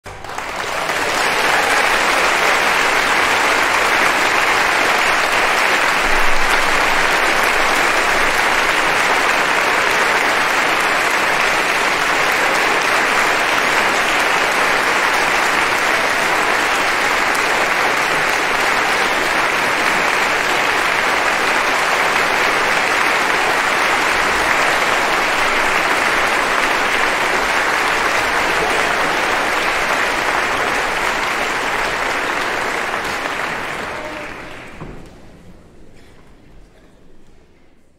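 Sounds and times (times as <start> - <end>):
crowd applauding: 0.0 - 36.7.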